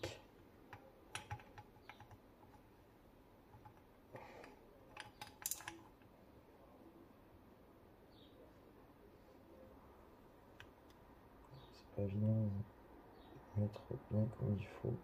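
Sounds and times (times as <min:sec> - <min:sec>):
small metal parts clicking: 0:04.4 - 0:06.1.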